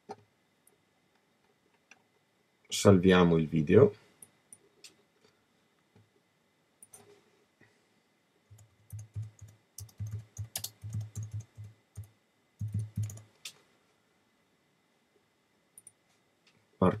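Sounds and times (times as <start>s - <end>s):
typing on computer keyboard: 8.5s - 13.3s.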